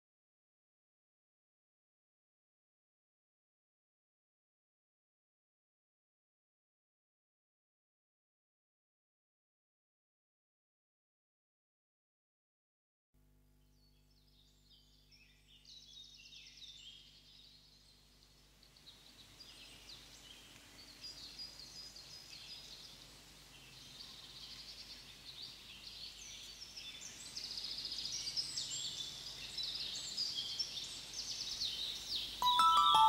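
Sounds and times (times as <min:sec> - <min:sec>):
songbirds chirping and trilling: 0:13.8 - 0:33.0.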